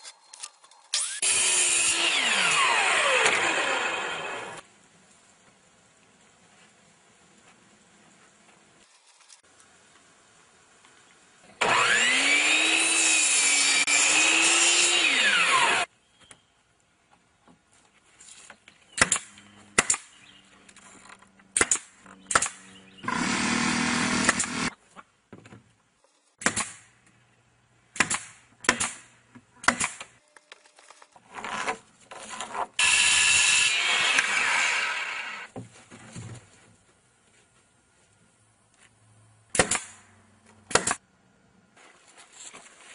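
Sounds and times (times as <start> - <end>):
saw motor running: 1.0 - 4.6, 11.6 - 15.9, 23.0 - 24.7, 32.8 - 35.5
circular saw cutting board: 32.8 - 35.5.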